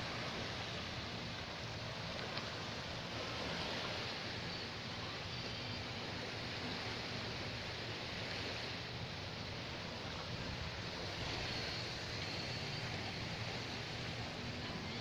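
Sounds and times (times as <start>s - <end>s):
gentle surf on sand: 0.0s - 15.0s.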